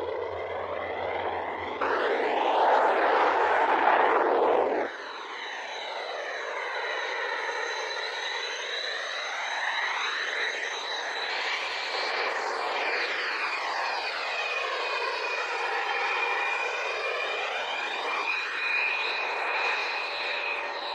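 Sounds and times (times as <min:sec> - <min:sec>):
jet engines whining: 0:00.0 - 0:20.9
rushing noise: 0:01.8 - 0:05.0.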